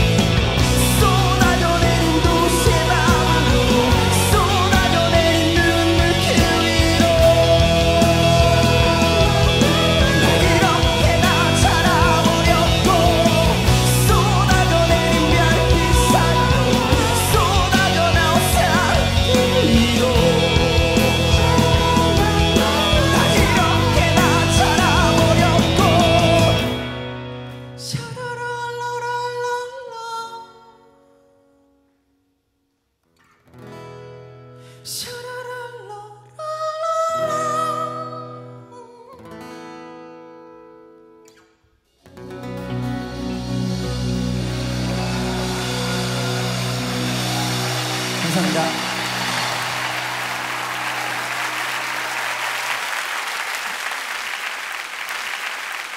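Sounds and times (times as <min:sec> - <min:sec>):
large audience applauding: 0:00.0 - 0:26.8, 0:43.6 - 0:55.9.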